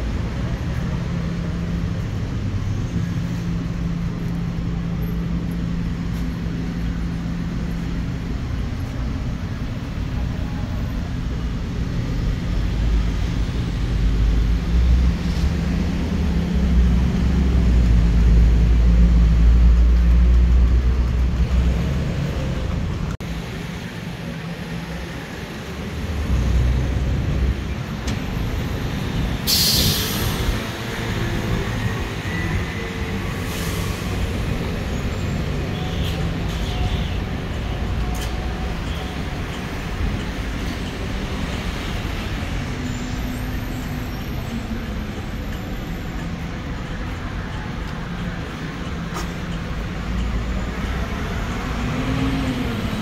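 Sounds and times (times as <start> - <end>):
traffic engines rumbling: 0.0 - 53.0
air brakes hissing: 29.4 - 30.7, 33.3 - 35.2.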